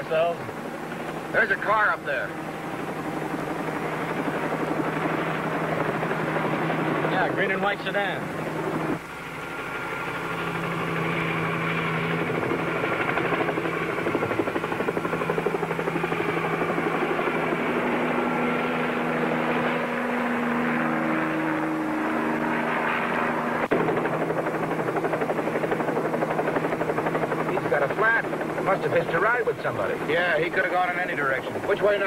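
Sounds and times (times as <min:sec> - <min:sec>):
helicopter rotor chop: 0:00.0 - 0:32.0.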